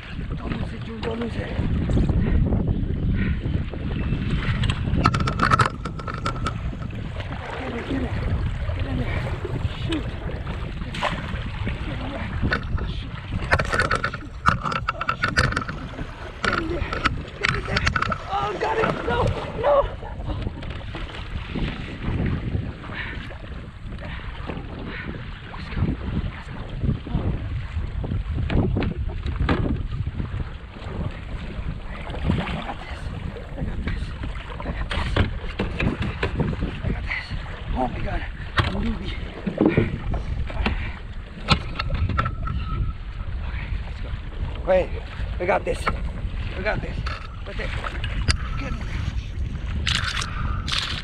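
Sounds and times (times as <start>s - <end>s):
wind rumbling on microphone: 0.0s - 51.0s
water splashing: 4.2s - 23.2s, 30.2s - 51.0s.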